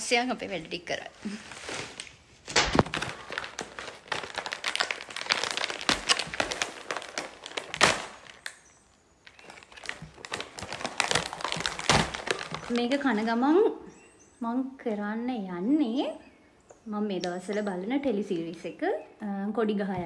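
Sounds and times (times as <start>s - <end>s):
food packet crinkling: 1.3s - 13.4s.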